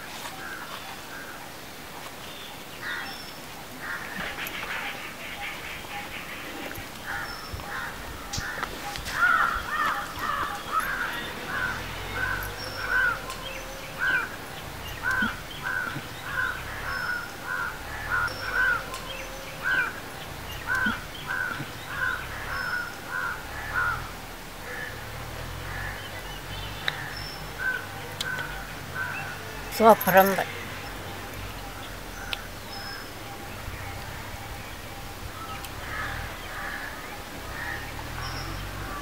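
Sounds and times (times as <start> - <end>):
crows cawing: 3.8 - 13.4, 14.0 - 14.4, 15.0 - 19.0, 19.6 - 20.0, 20.7 - 25.0, 25.6 - 26.1, 35.4 - 38.1.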